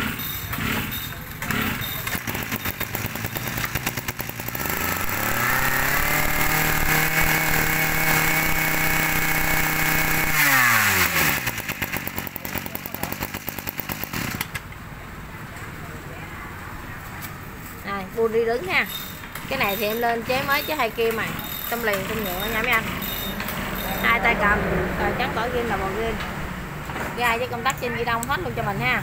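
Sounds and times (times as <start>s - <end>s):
brush cutter engine revving: 0.0s - 14.7s, 19.1s - 24.4s.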